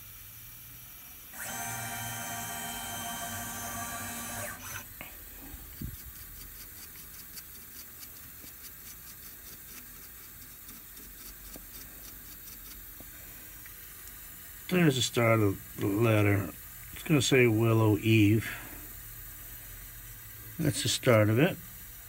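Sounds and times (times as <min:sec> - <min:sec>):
mill motors whining: 0:00.0 - 0:06.7
paintbrush brushing: 0:05.4 - 0:12.8.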